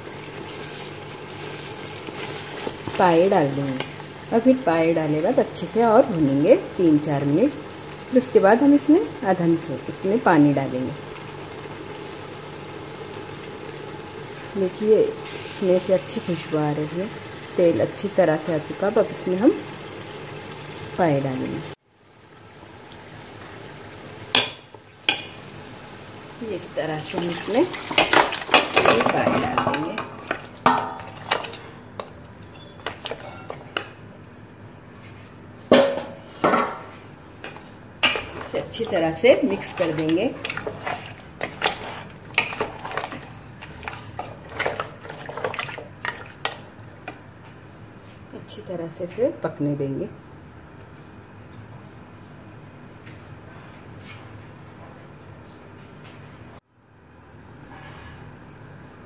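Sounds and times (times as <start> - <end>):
food sizzling in a pot: 0.0 - 48.3
wooden spoon knocking on pot: 24.3 - 25.4
scraping clatters: 37.5 - 46.6.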